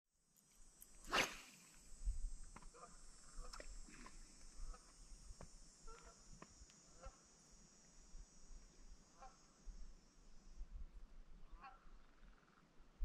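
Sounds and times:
faint waterfowl calls: 2.7 - 4.9, 5.8 - 7.3, 9.0 - 9.7, 11.4 - 12.6.

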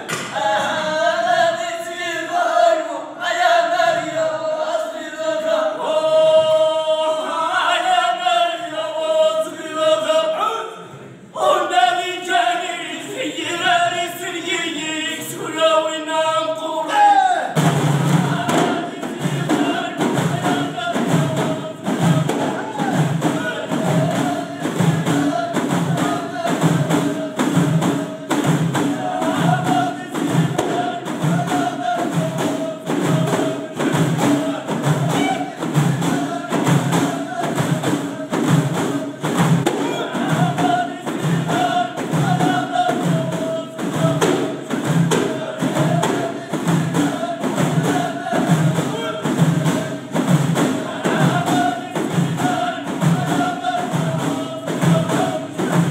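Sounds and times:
chorus of voices singing: 0.0 - 55.9
frame drums beating: 17.5 - 55.9.

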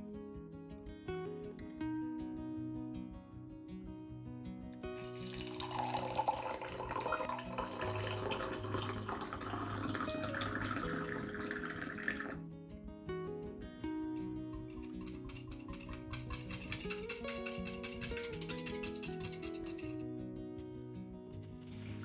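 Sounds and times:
soft guitar music: 0.0 - 22.0
water pouring into mug: 4.8 - 12.4.

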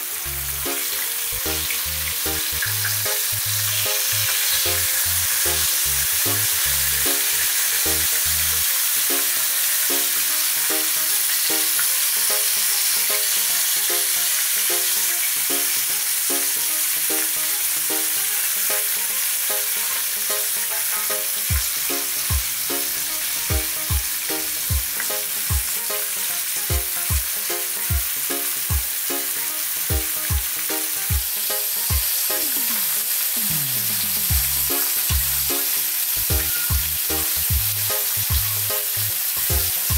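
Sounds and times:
fish sizzling in oil: 0.0 - 39.9
music with repeating bass line: 0.1 - 7.2, 21.5 - 25.7, 26.7 - 28.9, 33.4 - 35.6, 36.2 - 39.9
kick drum beat: 21.5 - 22.5, 23.5 - 24.1, 24.7 - 25.7, 26.7 - 28.9, 29.9 - 30.5, 31.1 - 31.3, 34.3 - 35.3, 36.3 - 36.9, 37.5 - 37.7, 38.3 - 38.5.

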